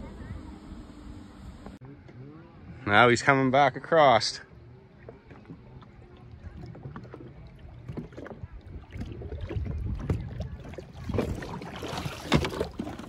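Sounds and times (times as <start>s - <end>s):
water lapping against hull: 3.8s - 13.0s
sharp splash or knock: 11.0s - 13.0s.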